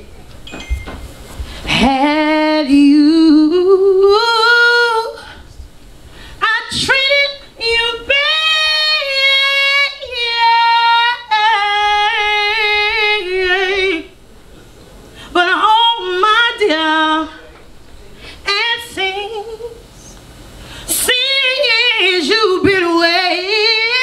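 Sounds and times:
woman singing unaccompanied: 1.7s - 5.4s, 6.4s - 14.2s, 15.4s - 17.4s, 18.5s - 19.8s, 20.9s - 24.0s.

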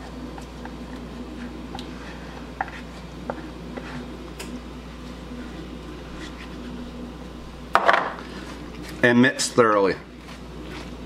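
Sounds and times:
spatula scraping dressing: 0.0s - 4.6s, 5.4s - 6.8s
low hum: 0.0s - 9.0s.

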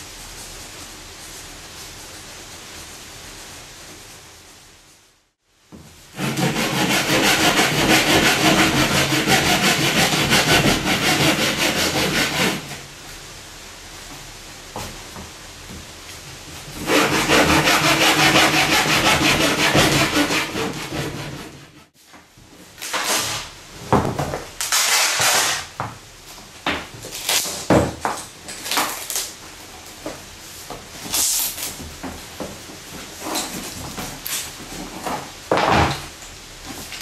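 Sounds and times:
hand saw cutting wood: 6.2s - 12.8s, 16.8s - 21.9s.

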